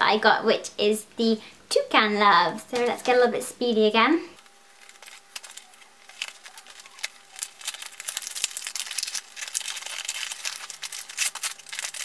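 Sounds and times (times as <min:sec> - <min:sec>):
paper packaging crinkling and tearing: 0:04.4 - 0:12.0.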